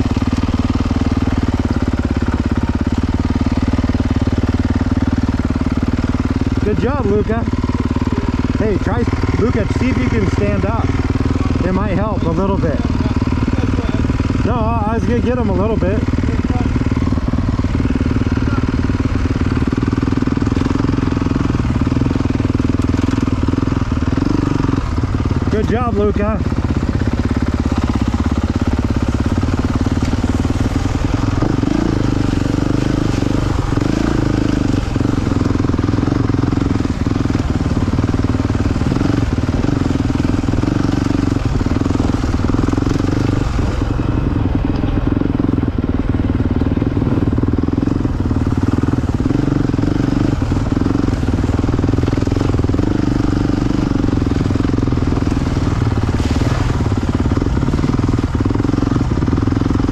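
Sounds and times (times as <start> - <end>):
dirt bike engine running: 0.0 - 59.9.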